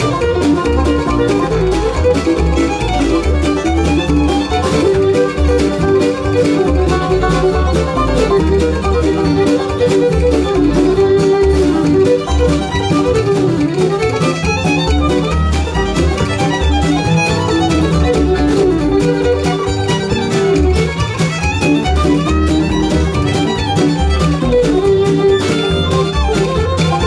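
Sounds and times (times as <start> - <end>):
bluegrass band playing: 0.0 - 27.0
fiddle playing: 0.0 - 27.0
percussive beat: 0.0 - 27.0.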